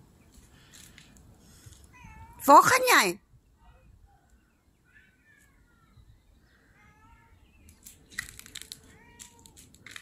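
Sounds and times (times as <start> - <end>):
crackling and scraping of foliage: 0.2 - 1.9, 7.6 - 10.0
cat meowing faintly: 1.9 - 2.6, 8.8 - 9.7.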